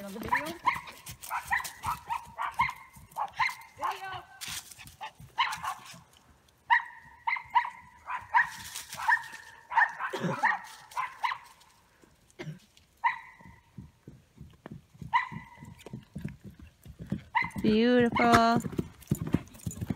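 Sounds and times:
dog barking: 0.2s - 4.0s, 5.0s - 6.0s, 6.7s - 11.5s, 13.0s - 13.5s, 15.1s - 15.6s, 17.3s - 17.6s.

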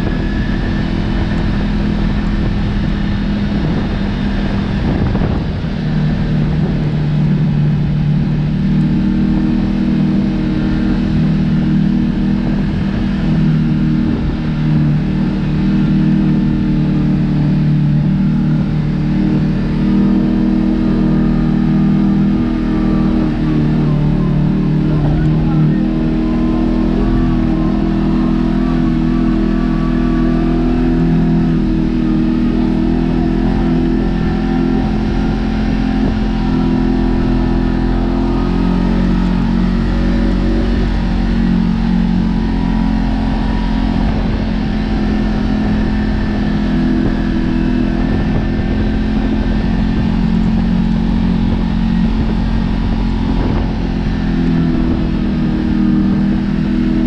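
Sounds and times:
low rumble: 0.0s - 57.0s
off-road vehicle engine running: 0.0s - 57.0s.

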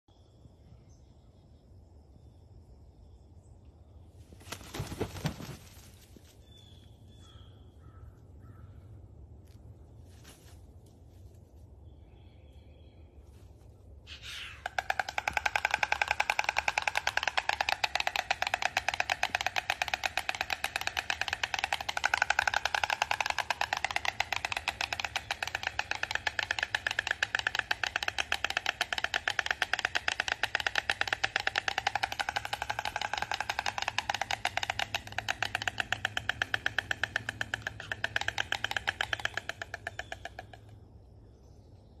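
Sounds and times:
fast clicking rattle: 14.6s - 40.8s.

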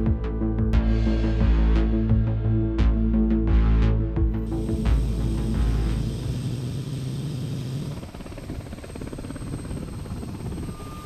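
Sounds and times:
low hum: 0.0s - 11.0s
helicopter rotor flutter: 4.4s - 11.0s.

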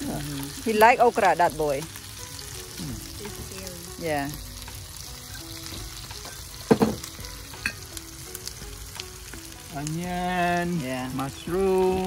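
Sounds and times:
food sizzling on a griddle: 0.0s - 12.0s.

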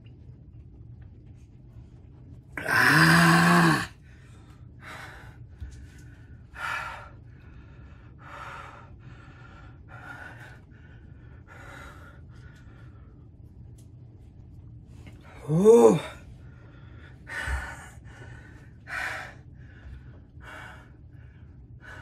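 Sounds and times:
man breathing hard: 2.6s - 13.2s, 15.2s - 22.0s.

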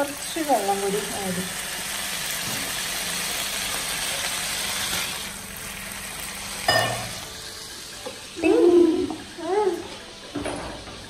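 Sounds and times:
food sizzling in frying pan: 0.0s - 11.0s.

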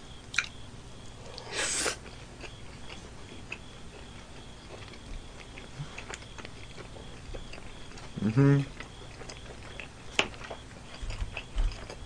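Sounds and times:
person chewing food: 0.3s - 0.6s, 1.2s - 12.0s
short hissing burst: 1.5s - 2.0s.

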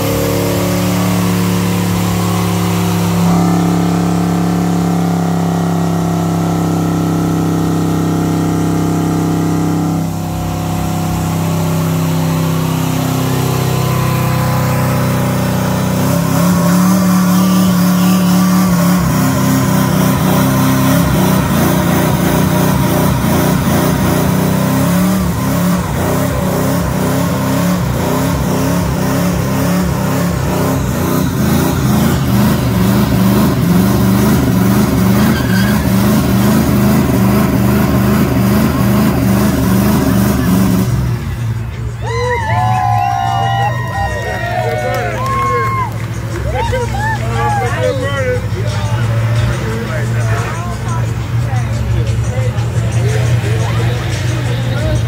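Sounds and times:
engine revving high: 0.0s - 41.9s.

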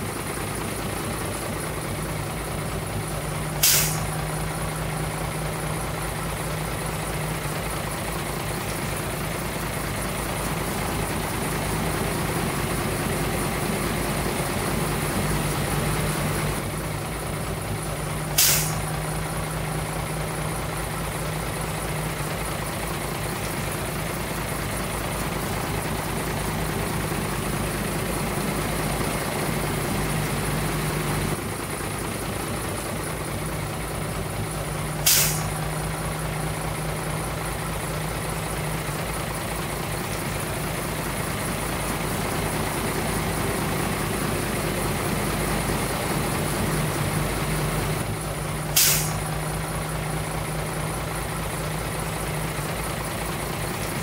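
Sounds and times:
diesel truck engine running: 0.0s - 54.0s
air brake hiss: 3.5s - 4.3s, 18.3s - 19.0s, 35.0s - 35.7s, 48.6s - 49.3s.

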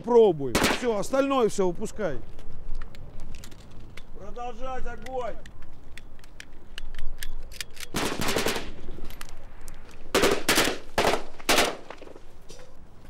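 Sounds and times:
automatic rifle bursts: 7.5s - 8.8s.

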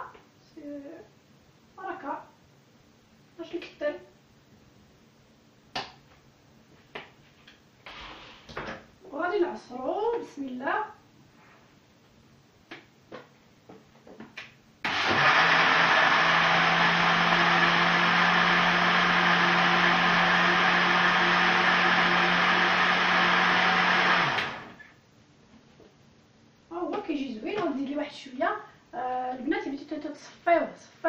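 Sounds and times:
blender running: 14.9s - 24.8s.

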